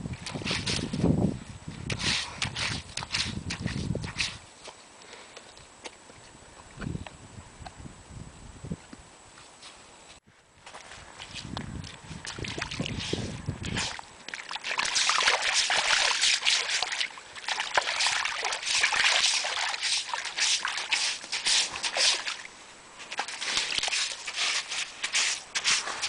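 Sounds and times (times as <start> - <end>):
dog paw splashing in water: 13.6 - 22.5.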